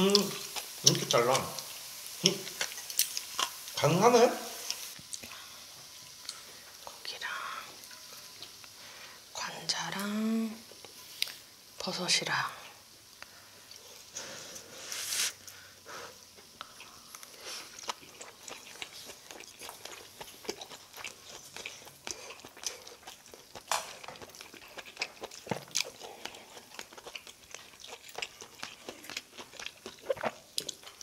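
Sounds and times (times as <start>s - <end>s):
chewing with wet mouth clicks: 0.1s - 3.6s, 16.4s - 31.0s.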